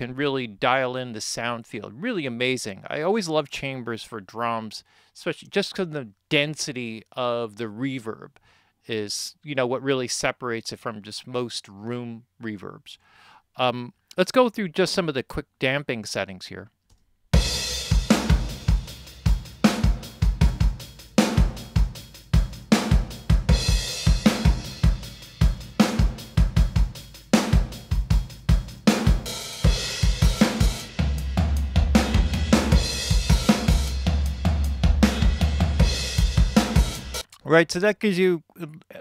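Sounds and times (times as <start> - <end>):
drum kit with reverb: 17.4 - 37.3.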